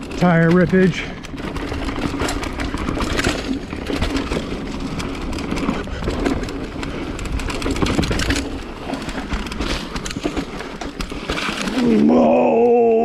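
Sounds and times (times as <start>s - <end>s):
bike rattling: 0.0s - 13.0s
tyres on dirt and rocks: 0.0s - 13.0s.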